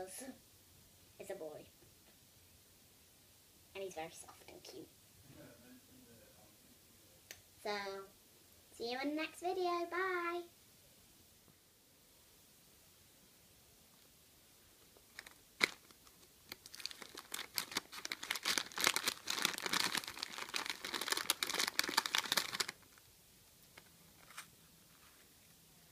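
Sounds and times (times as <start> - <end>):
plastic wrapper crinkling: 15.0 - 23.1.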